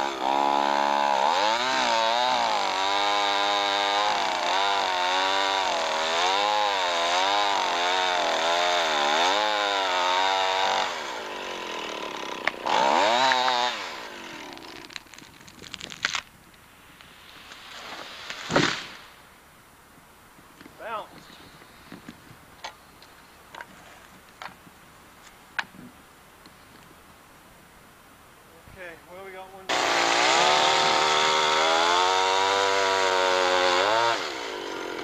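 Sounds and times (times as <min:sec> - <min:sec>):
chainsaw cutting wood: 0:00.0 - 0:16.3, 0:17.4 - 0:19.2, 0:29.7 - 0:35.0
tree cracking: 0:11.5 - 0:16.6.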